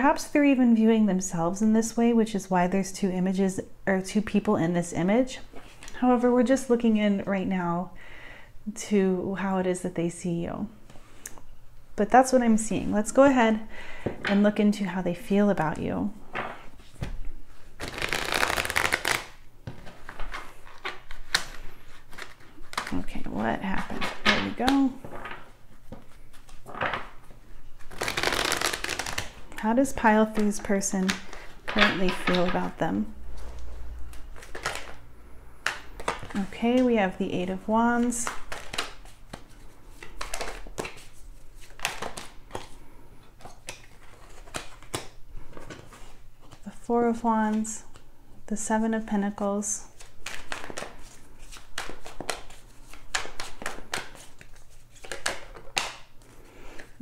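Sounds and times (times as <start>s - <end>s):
cards being riffle-shuffled: 16.4s - 23.1s, 23.7s - 29.6s, 33.4s - 35.0s, 38.0s - 42.8s, 43.4s - 46.6s, 50.0s - 56.9s.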